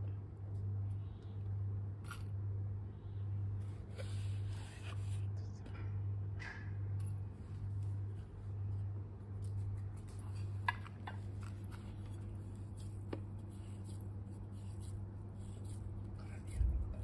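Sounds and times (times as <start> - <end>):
steady low hum: 0.0 - 17.0
hands kneading paste in steel bowl: 7.7 - 17.0.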